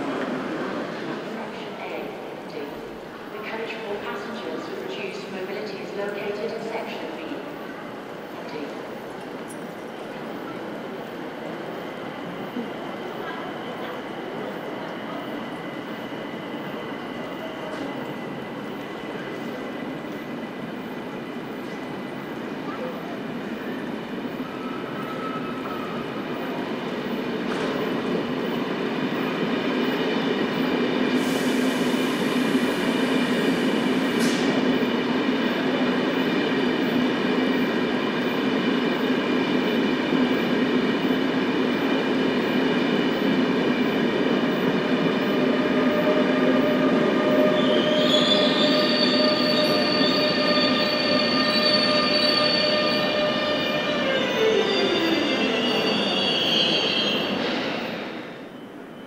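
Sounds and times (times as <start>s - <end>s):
train running noise: 0.0s - 58.9s
train wheels squealing: 24.3s - 26.1s, 45.2s - 59.0s.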